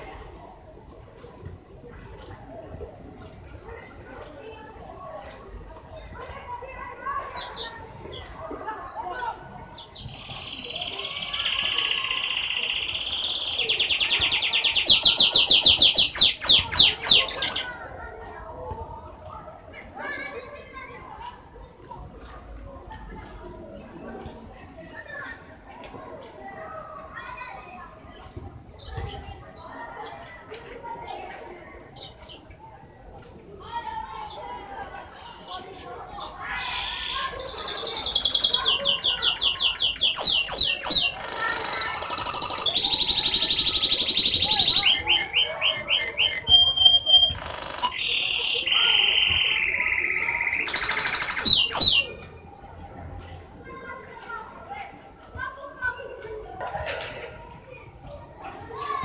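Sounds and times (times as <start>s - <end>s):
canary singing: 9.8s - 17.7s, 36.2s - 52.1s.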